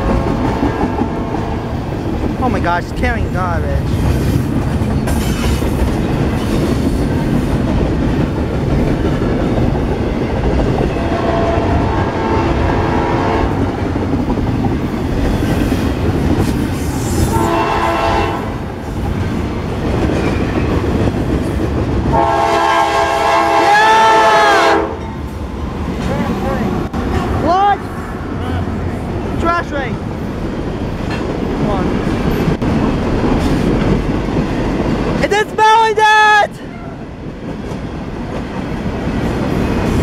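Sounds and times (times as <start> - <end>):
freight train rumble and wheel clatter: 0.0 - 40.0
locomotive air horn blasts: 11.1 - 13.6, 17.3 - 18.6, 22.1 - 25.0.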